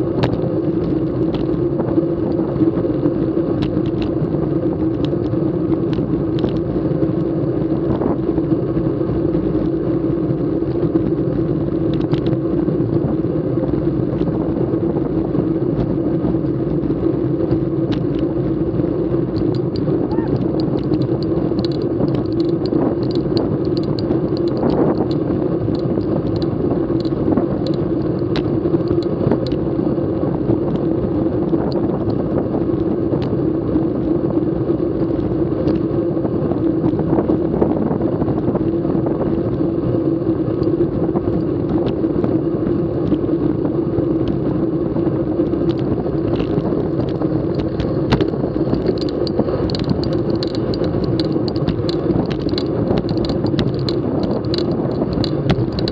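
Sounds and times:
bicycle tyres rumbling on asphalt: 0:00.0 - 0:55.9
light clicks and rattles: 0:03.6 - 0:04.3, 0:11.9 - 0:12.4, 0:19.3 - 0:29.6, 0:45.4 - 0:55.9.

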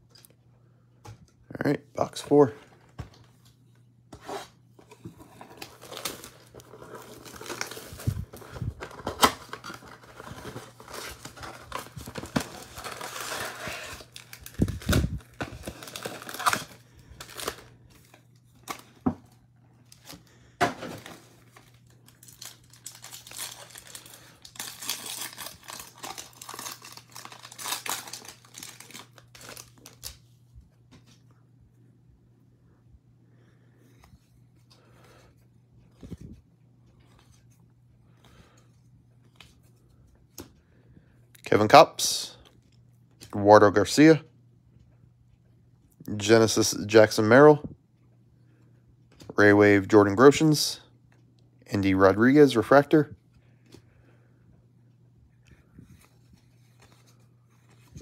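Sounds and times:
foil wrappers tearing and crinkling: 0:05.4 - 0:18.9, 0:20.9 - 0:30.2.

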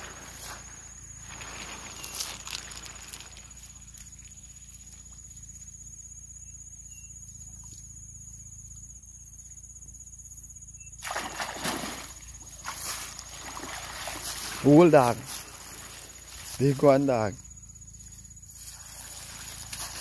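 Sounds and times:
water splashing and sloshing: 0:00.0 - 0:04.3, 0:11.0 - 0:16.6, 0:18.6 - 0:20.0
low steady hum: 0:00.0 - 0:20.0.

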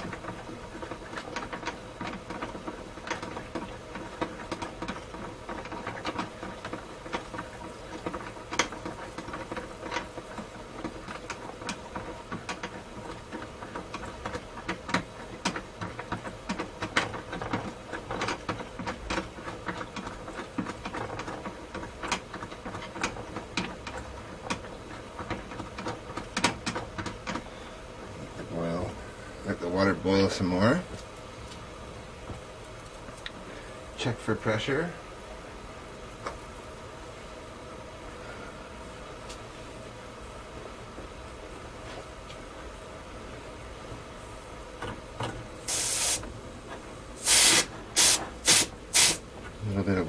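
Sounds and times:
boiler ticking and crackling: 0:00.0 - 0:37.9
steady burner hum: 0:00.0 - 0:50.0.

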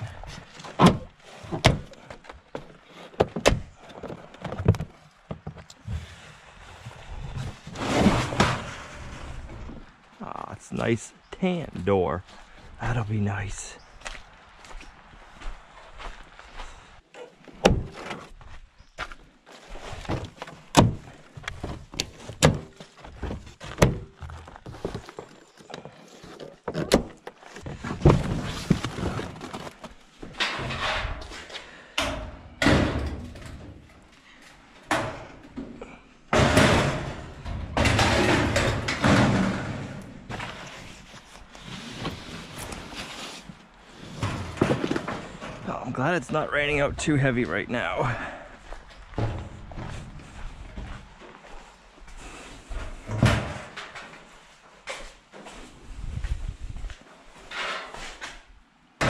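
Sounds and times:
scraping and rustling: 0:00.0 - 0:10.1, 0:19.6 - 0:31.5, 0:37.4 - 0:45.6
knocks and thunks of metal parts: 0:20.1 - 0:25.4, 0:30.2 - 0:31.3, 0:32.0 - 0:34.0, 0:34.8 - 0:40.6, 0:49.2 - 0:50.0, 0:53.0 - 0:54.3.

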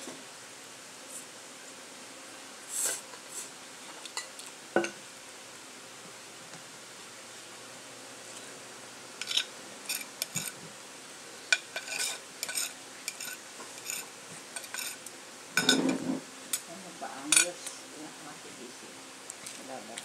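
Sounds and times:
cutlery clinking on ceramic plate: 0:09.2 - 0:10.6, 0:11.6 - 0:15.0, 0:15.6 - 0:16.0.

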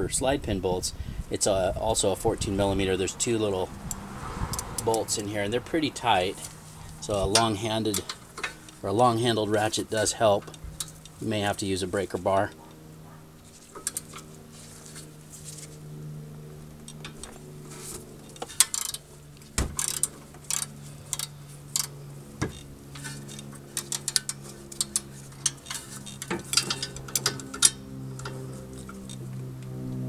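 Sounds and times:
ratchet clicking: 0:18.4 - 0:19.0, 0:19.8 - 0:29.2.

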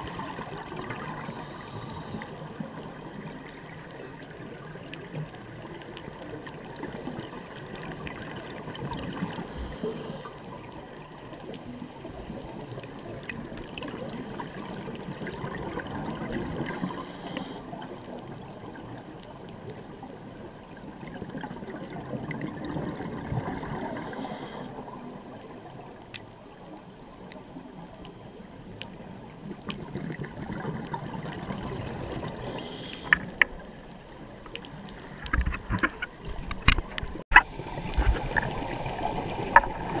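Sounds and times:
faint clicks: 0:00.3 - 0:14.2, 0:23.5 - 0:38.5
hissing regulator inhalation: 0:01.2 - 0:02.7, 0:16.7 - 0:18.0, 0:23.8 - 0:24.8, 0:32.4 - 0:33.4.

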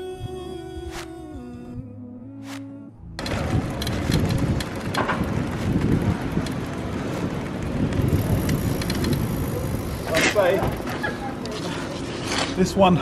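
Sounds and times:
wind buffeting microphone: 0:03.2 - 0:10.9
road traffic noise: 0:03.2 - 0:13.0.

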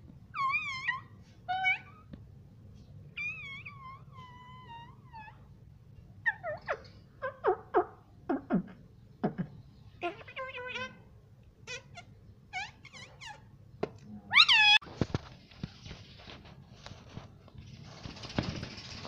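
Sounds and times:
parakeet calling: 0:11.6 - 0:13.5.

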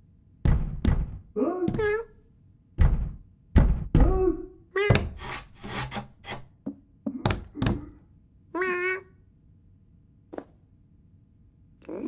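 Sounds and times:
cat knocking on wooden door: 0:00.4 - 0:02.0, 0:02.8 - 0:04.3.

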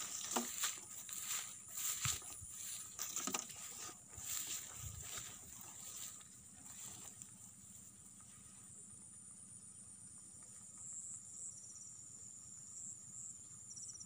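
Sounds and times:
light rustling: 0:00.0 - 0:07.9
insects trilling: 0:00.0 - 0:14.0.

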